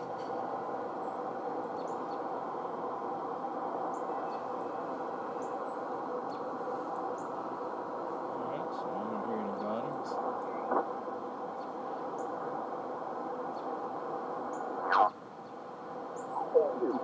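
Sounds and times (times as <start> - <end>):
radio receiver hiss: 8.3 - 11.0
faint bird chirps: 14.5 - 17.0.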